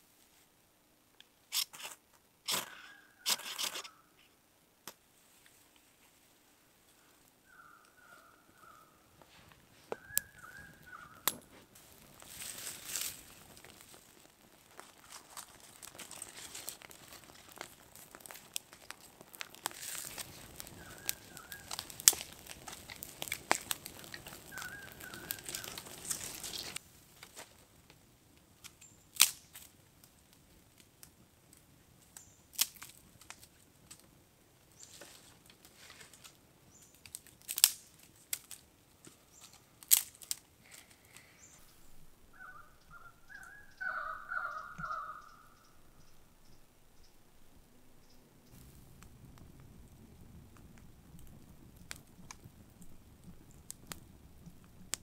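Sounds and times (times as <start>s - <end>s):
campfire crackling: 0.0s - 55.0s
sharp pops and snaps of fire: 1.2s - 3.9s, 4.8s - 5.9s, 7.0s - 43.8s, 48.1s - 55.0s
bird calling: 7.0s - 9.1s, 9.8s - 11.5s, 20.6s - 22.0s, 24.0s - 26.8s, 41.2s - 47.2s.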